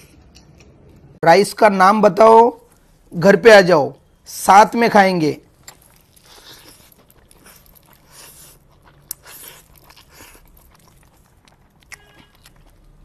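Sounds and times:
wet chewing: 5.4 - 13.0.

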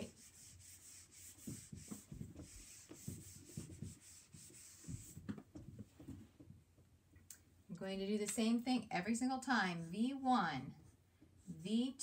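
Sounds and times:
eraser rubbing on whiteboard: 0.0 - 5.3.

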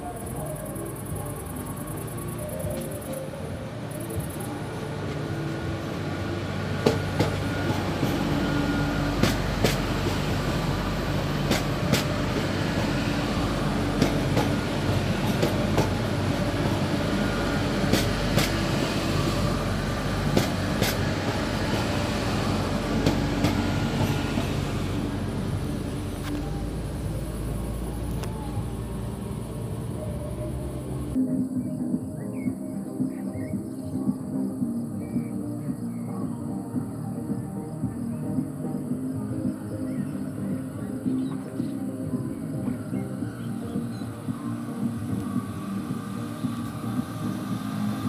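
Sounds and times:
train droning past: 0.0 - 48.0
wheels clicking over rail joints: 6.6 - 27.4.

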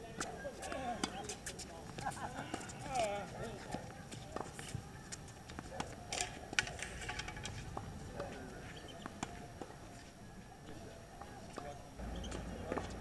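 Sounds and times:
tennis balls hit with rackets: 0.1 - 9.8, 11.2 - 13.0
tennis balls bouncing on hard court: 11.5 - 13.0.

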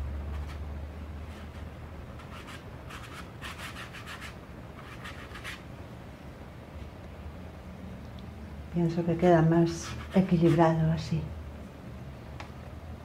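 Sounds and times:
brush rubbing on paper: 9.7 - 10.7.

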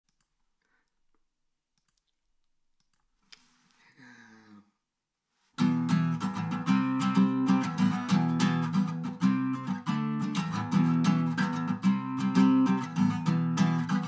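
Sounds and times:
acoustic guitar strumming: 5.6 - 14.0.

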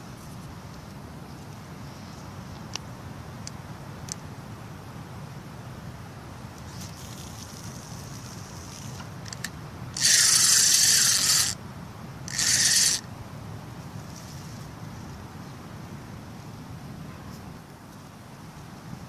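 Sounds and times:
fishing reel whirring: 6.7 - 11.6, 12.3 - 13.1.

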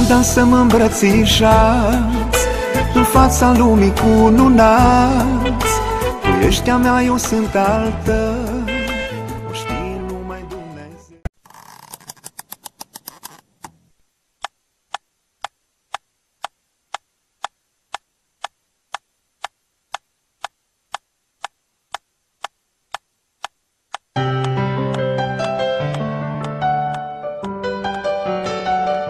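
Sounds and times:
music: 0.0 - 11.3, 24.2 - 29.0
sharp even ticking: 14.4 - 26.6.

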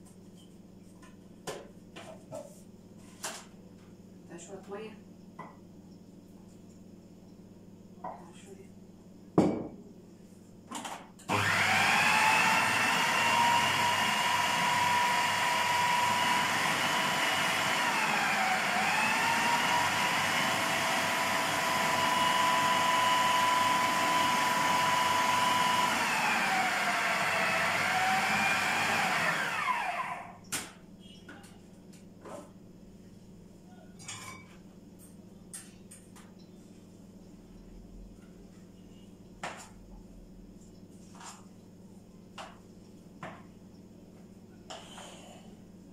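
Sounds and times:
electric blender grinding: 11.3 - 30.4.

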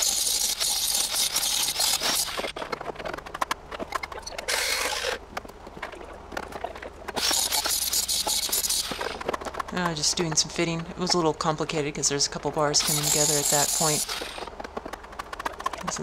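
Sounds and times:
angle grinder cutting steel: 0.0 - 2.6, 4.5 - 5.2, 7.2 - 9.2, 12.8 - 14.5.

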